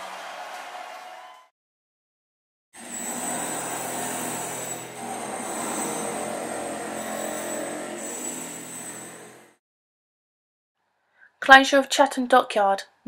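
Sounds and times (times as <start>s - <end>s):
mechanical drone: 2.8s - 9.6s.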